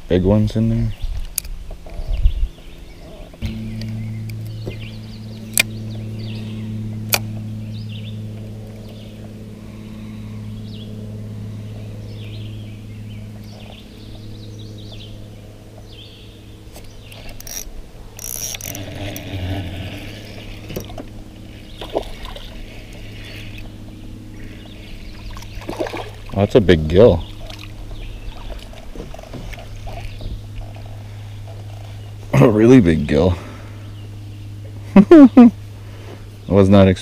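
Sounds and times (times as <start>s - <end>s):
steady low hum: 0.0s - 37.0s
water splashing: 18.7s - 23.7s, 24.4s - 31.6s.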